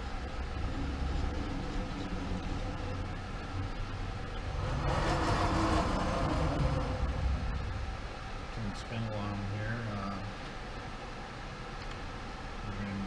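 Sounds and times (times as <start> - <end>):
lathe motor hum: 0.0 - 10.4.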